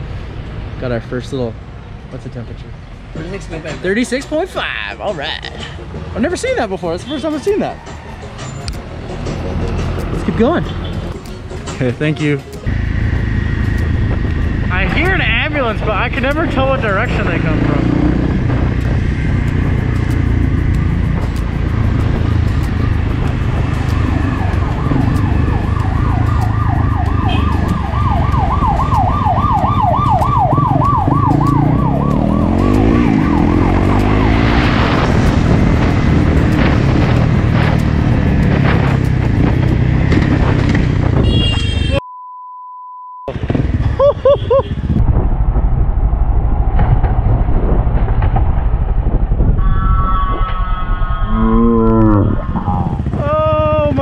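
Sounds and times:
motorcycle engine: 12.7 - 41.9, 51.3 - 54.0
wind rush: 12.7 - 42.0, 43.3 - 54.0
ambulance siren wailing: 23.7 - 35.0
short steady beep: 42.0 - 43.3.

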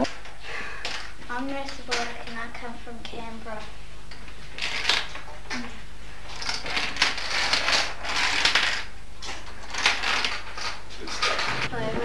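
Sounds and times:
dominoes clattering on table: 4.6 - 5.7, 6.3 - 11.7.

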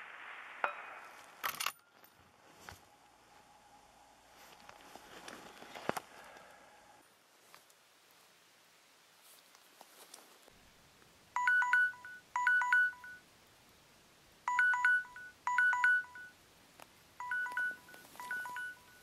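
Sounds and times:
phone timer alarm beeps: 11.4 - 13.2, 14.5 - 16.4, 17.2 - 19.0.

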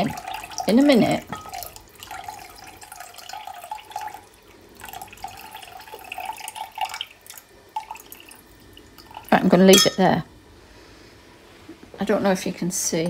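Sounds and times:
liquid trickling into a pan: 0.0 - 10.0.

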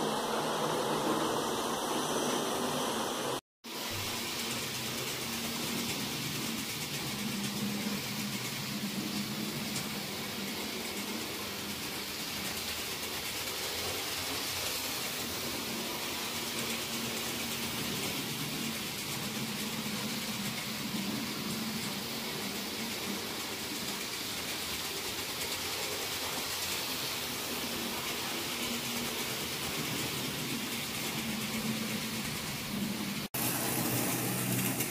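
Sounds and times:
constant hiss: 0.0 - 34.9
model trains humming: 0.0 - 34.9.

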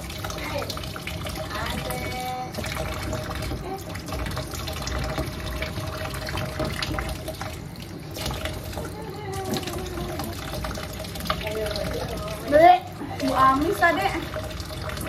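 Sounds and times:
tap water running: 0.0 - 15.0
water splashing: 0.0 - 15.0.

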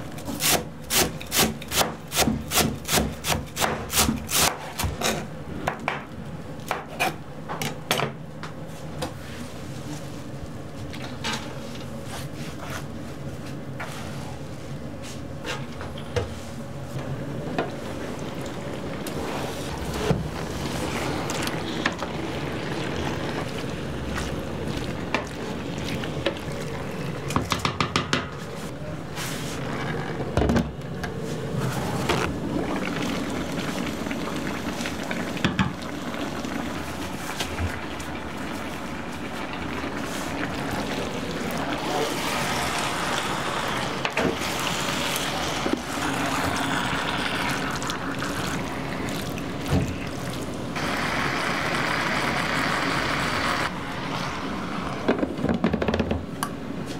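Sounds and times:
meat simmering in a pan: 32.6 - 55.0.

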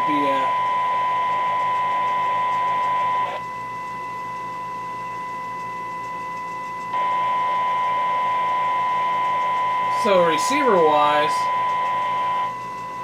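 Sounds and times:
radio hiss: 0.0 - 3.4, 7.0 - 12.6
steady test tone: 0.0 - 13.0.

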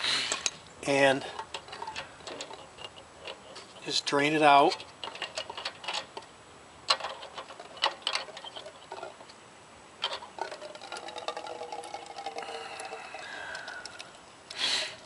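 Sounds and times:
trickle of fuel into a cup: 10.4 - 15.0.

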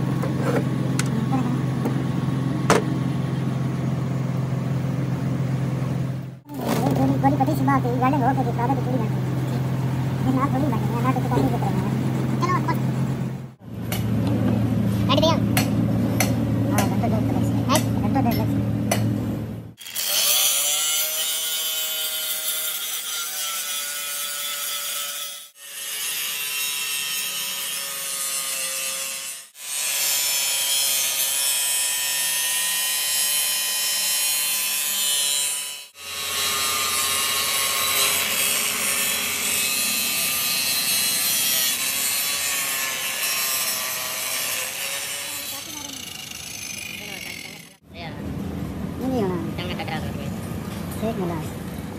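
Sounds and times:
angle grinder grinding steel: 19.8 - 47.8.

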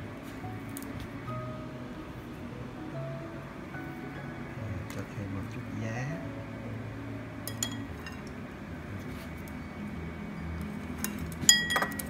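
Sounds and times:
utensil clinking against bowl: 7.4 - 8.3, 11.0 - 12.0.

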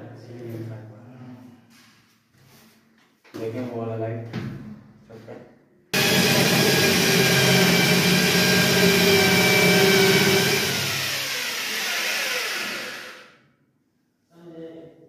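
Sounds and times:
electric drill spinning down: 6.0 - 13.4.

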